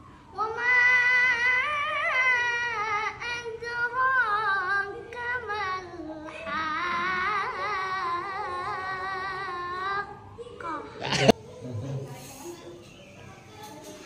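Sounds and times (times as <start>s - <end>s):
boy reciting melodically: 0.3s - 11.3s.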